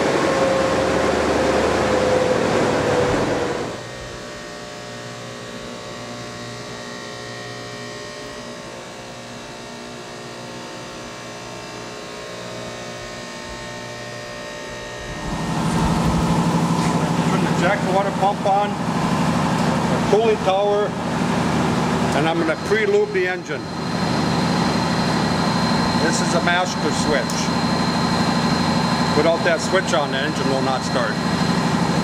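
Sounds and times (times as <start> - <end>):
deep machine noise: 0.0 - 5.9, 12.8 - 32.0
machinery hum with steady tones: 0.0 - 32.0.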